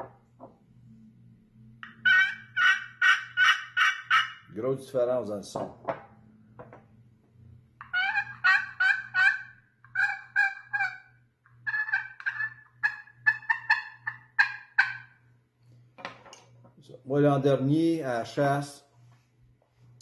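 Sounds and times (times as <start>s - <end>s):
turkey call yelps: 1.8s - 4.5s, 7.8s - 15.2s.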